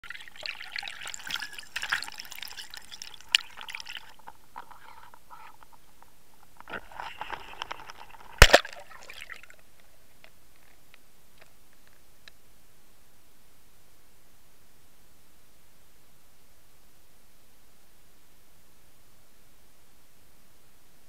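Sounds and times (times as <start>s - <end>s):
water gurgling and splashing: 0.0s - 5.1s, 8.2s - 9.6s
faint steady hiss: 0.0s - 21.0s.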